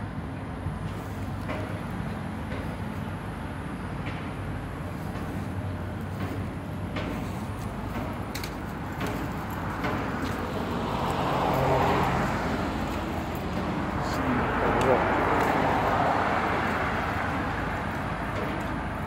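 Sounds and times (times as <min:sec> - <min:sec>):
road traffic: 0:00.0 - 0:19.0
vehicle passing: 0:04.6 - 0:19.0.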